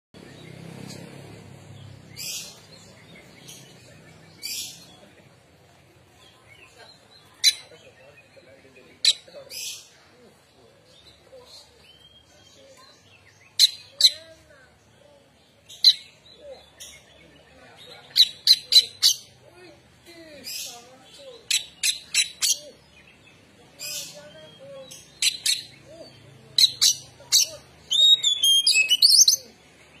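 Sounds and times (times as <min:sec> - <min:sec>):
bird singing scratchy notes: 0:20.5 - 0:30.0
bird whistled notes: 0:27.9 - 0:29.3.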